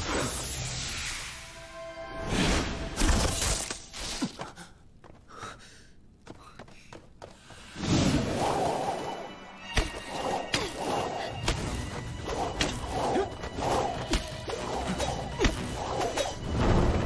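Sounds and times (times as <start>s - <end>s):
dramatic background music: 0.0s - 3.6s, 7.6s - 17.0s.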